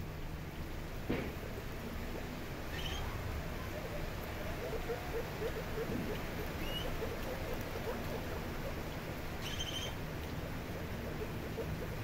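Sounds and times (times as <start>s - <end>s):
guinea pig squeak: 2.7s - 3.1s, 4.6s - 8.2s, 9.4s - 10.0s
guinea pigs chewing: 3.8s - 12.0s.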